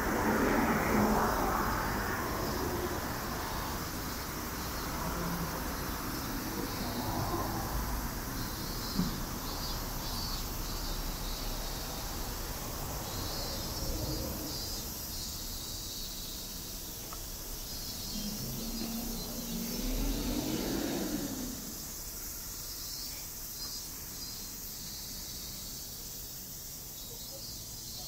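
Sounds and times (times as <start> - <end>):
vehicle passing: 0.0 - 15.0, 16.2 - 22.4
low traffic hum: 0.0 - 23.5
insects buzzing: 0.0 - 28.0.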